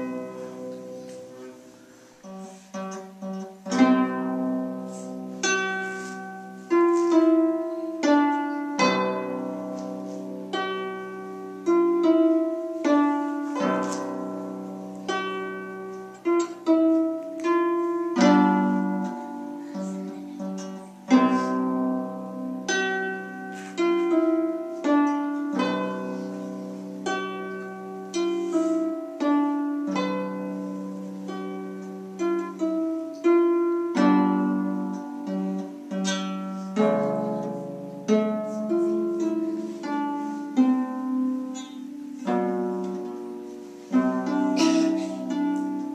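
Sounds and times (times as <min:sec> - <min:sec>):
plucked harp melody: 0:00.0 - 0:45.9.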